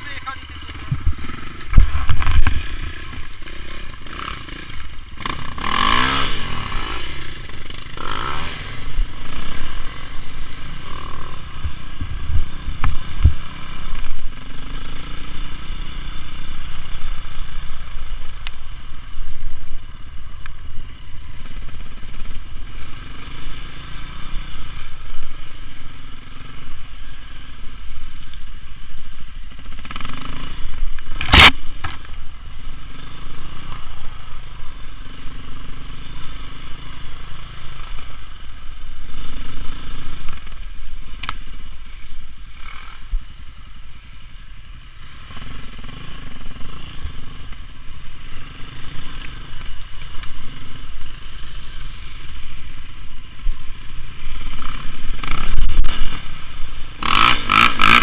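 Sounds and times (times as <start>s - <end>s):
motorcycle engine revving: 0.0s - 58.0s
bike clattering and scraping: 0.5s - 15.5s, 29.7s - 32.2s.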